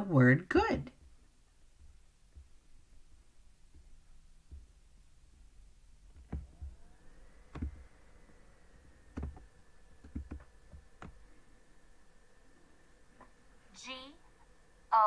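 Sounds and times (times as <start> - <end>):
computer mouse clicking: 9.1 - 11.2.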